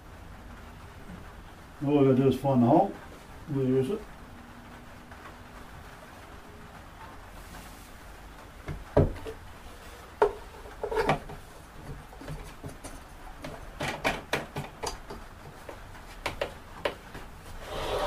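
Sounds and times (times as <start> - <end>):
wooden knocks and clunks: 8.6 - 9.4, 10.2 - 17.3
wooden clatter: 10.1 - 17.3.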